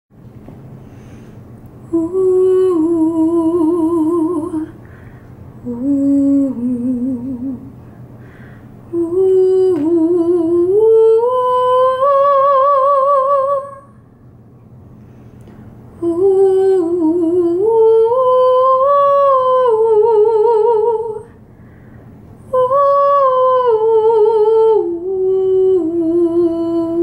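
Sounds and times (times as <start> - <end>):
woman humming a melody: 1.8 - 4.8, 5.6 - 7.7, 8.9 - 13.8, 16.0 - 21.3, 22.5 - 27.0.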